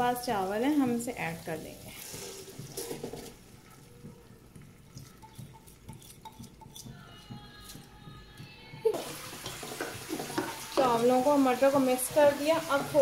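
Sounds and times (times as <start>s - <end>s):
rice pouring into a pan: 1.8s - 3.5s.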